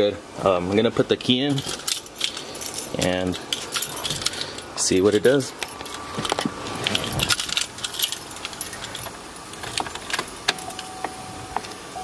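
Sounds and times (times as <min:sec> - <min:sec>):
keys jangling on key ring: 0:01.6 - 0:04.6, 0:06.8 - 0:09.1
steady electronic tone: 0:10.6 - 0:12.0.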